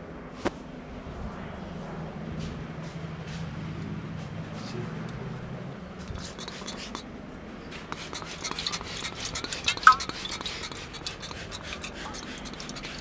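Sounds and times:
spray bottle hissy spurts: 6.1 - 7.0, 7.8 - 13.0.

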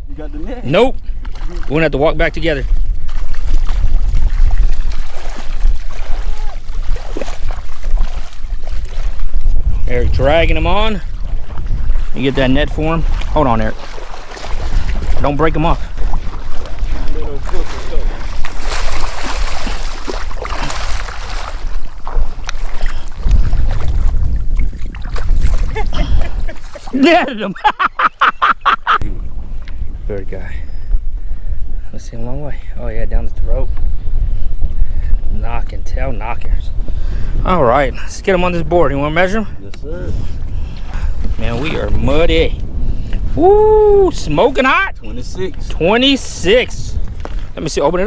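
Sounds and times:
wind rumble on microphone: 0.0 - 27.8, 28.6 - 48.0
water sloshing and splashing: 1.1 - 9.8, 10.9 - 27.2, 40.3 - 42.2.

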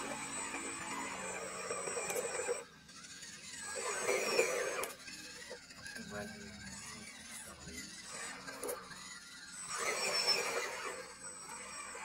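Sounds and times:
small electric motor whining: 0.0 - 12.0.

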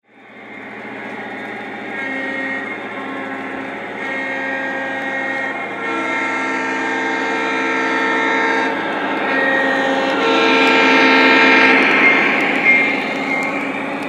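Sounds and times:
model train motor whine: 0.2 - 14.0.

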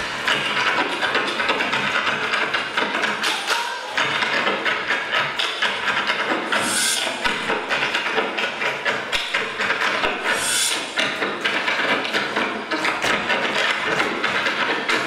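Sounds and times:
frame drum: 0.0 - 15.0.

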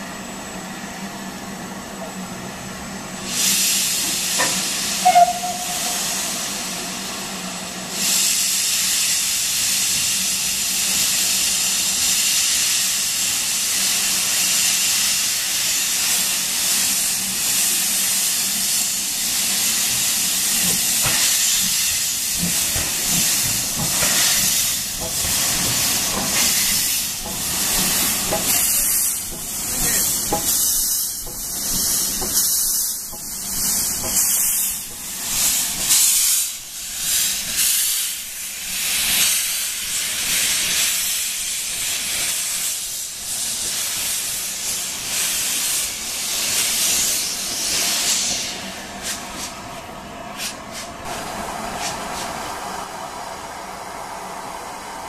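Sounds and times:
steam hissing from locomotive: 0.0 - 55.0
steam whistle toot: 4.9 - 6.6.

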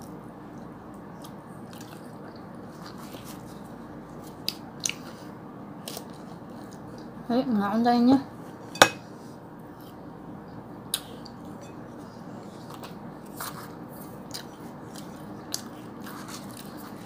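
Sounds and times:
person chewing noodles: 12.4 - 17.0.

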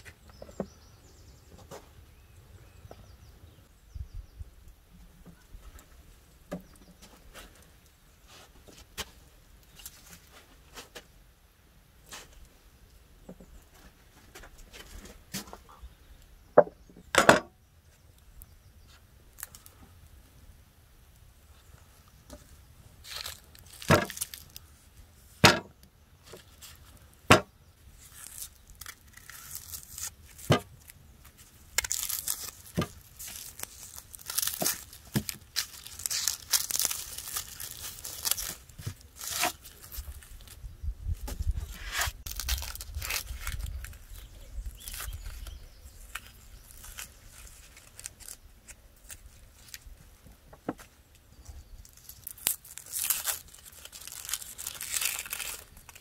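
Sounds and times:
onion skins crackling: 19.3 - 19.8, 22.4 - 25.4, 26.2 - 50.1, 51.4 - 56.0.

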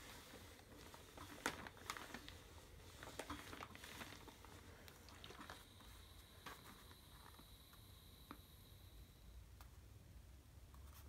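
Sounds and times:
fabric rustling: 0.0 - 7.6.

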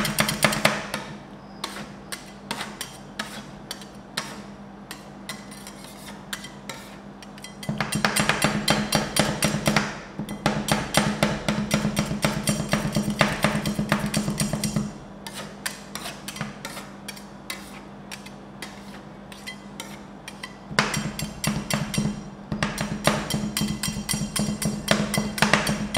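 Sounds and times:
metal spatulas tapping on cold plate: 7.2 - 14.9, 19.4 - 25.9.

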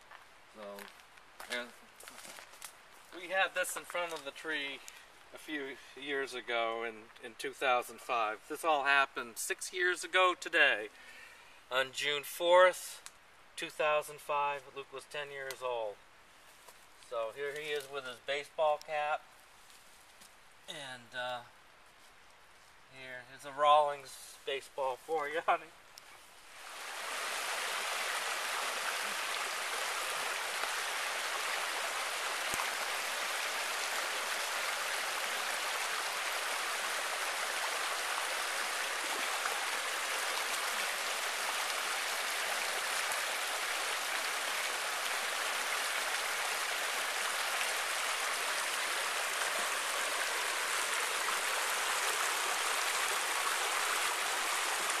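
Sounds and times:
stream rushing over boulders: 1.5 - 9.0, 26.3 - 55.0.

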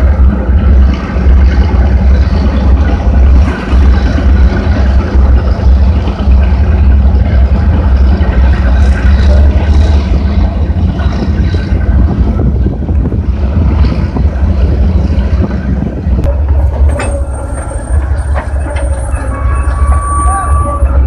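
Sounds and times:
heavy vehicle engines rumbling: 0.0 - 21.0
metallic clanks from bridge deck: 16.2 - 20.8.

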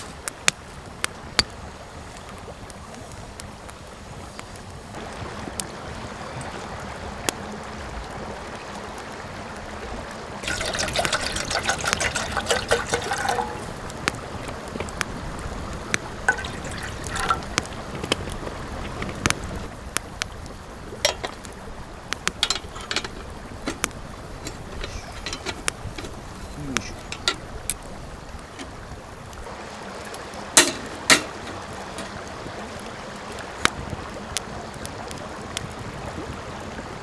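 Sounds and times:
wood fire crackling: 0.0 - 37.0
water pouring into metal kettle: 10.4 - 14.0, 16.2 - 17.7, 21.0 - 21.5, 22.2 - 27.8, 30.5 - 32.2.

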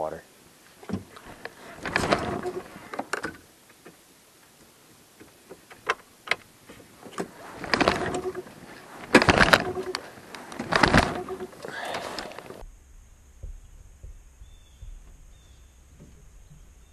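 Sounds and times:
outboard motor pull-start cranking: 9.0 - 12.6.

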